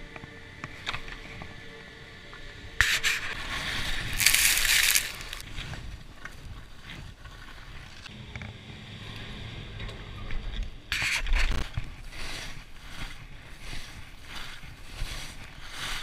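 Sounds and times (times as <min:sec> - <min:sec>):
skis scraping over snow: 0:02.9 - 0:08.1, 0:11.4 - 0:16.0.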